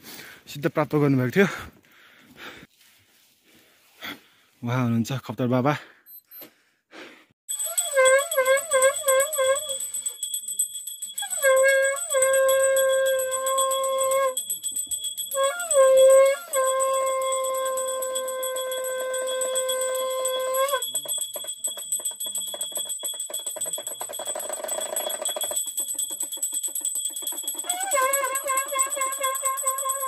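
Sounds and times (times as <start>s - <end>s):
conch shell blown: 7.5s - 10.0s, 11.2s - 14.6s, 15.2s - 21.2s, 27.6s - 30.0s
hand bell jingling: 7.5s - 30.0s.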